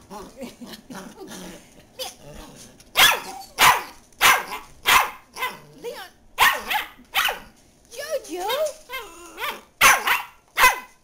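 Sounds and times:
dog barking sharply: 0:03.0 - 0:05.5, 0:06.4 - 0:07.4, 0:09.4 - 0:11.0.

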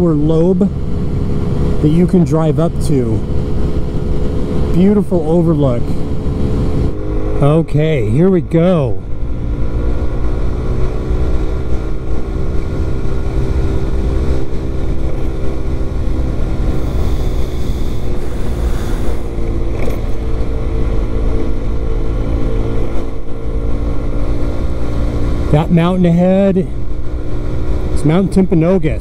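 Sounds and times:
scooter engine running: 0:09.0 - 0:23.9.

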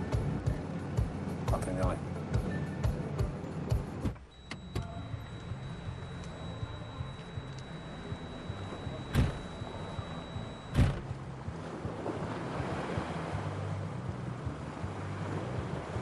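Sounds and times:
sharp thumps: 0:04.0 - 0:11.2
thin high steady tone: 0:04.3 - 0:11.0.

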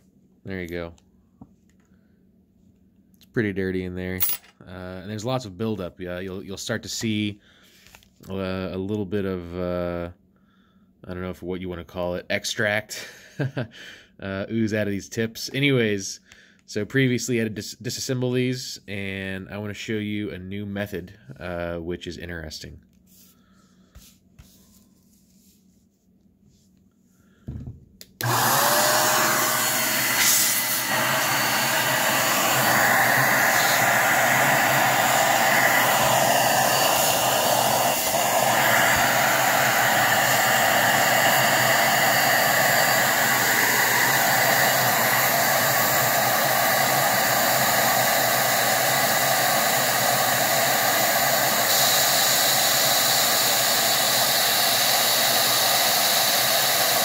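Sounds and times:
electric duster blowing air: 0:28.1 - 0:57.0.

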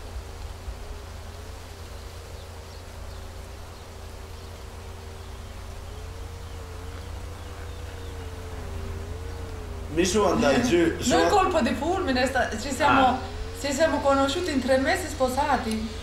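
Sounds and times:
insect buzzing: 0:00.0 - 0:16.0
low field ambience rumble: 0:00.0 - 0:16.0.

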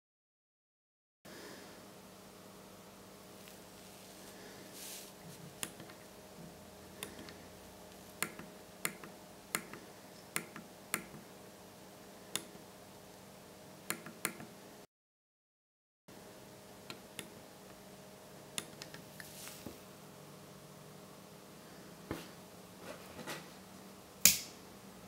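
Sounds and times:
faint steady hum: 0:01.3 - 0:14.9, 0:16.1 - 0:25.0.

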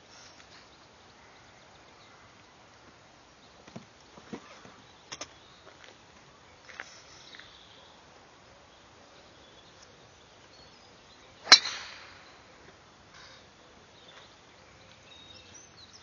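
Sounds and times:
golf driver striking ball: 0:11.4 - 0:12.3.

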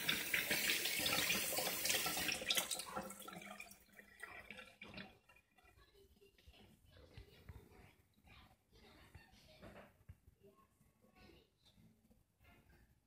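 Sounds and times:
tap water running into pot: 0:00.0 - 0:05.8.

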